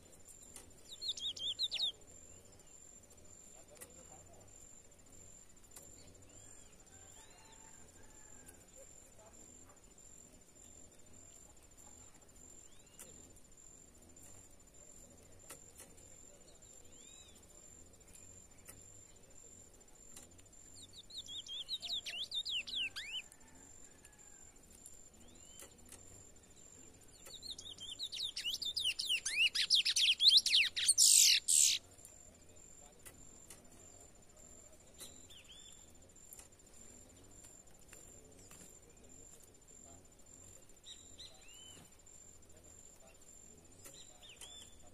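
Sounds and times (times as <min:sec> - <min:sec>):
high insect whine: 0:00.0 - 0:44.9
finch singing whistled notes: 0:00.8 - 0:02.0, 0:20.9 - 0:23.2, 0:27.2 - 0:31.8.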